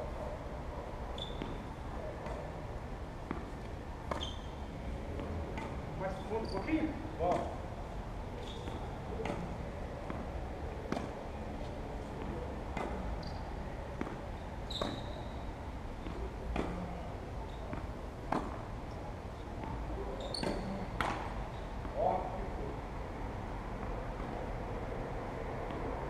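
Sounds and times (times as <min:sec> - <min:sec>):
low background noise: 0:00.0 - 0:26.0
tennis ball knocks: 0:07.2 - 0:07.6, 0:09.2 - 0:11.2, 0:17.7 - 0:18.6.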